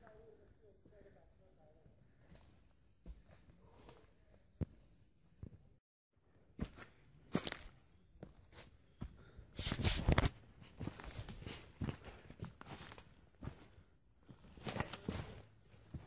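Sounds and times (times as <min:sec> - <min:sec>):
footsteps on forest floor: 0:06.6 - 0:16.0.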